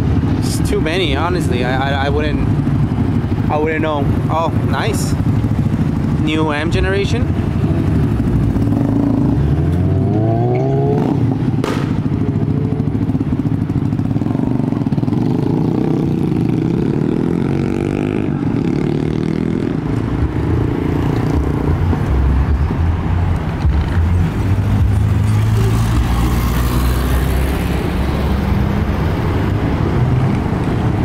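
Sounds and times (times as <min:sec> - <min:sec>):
cars driving past: 0:07.2 - 0:31.0
engine revving up: 0:08.5 - 0:11.9
sharp snap: 0:11.6 - 0:12.0.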